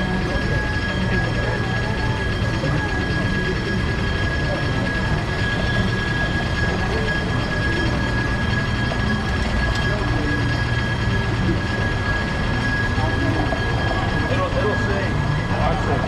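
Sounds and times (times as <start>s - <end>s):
high whine: 0.0s - 16.0s
streetcar rumbling on rails: 0.0s - 16.0s.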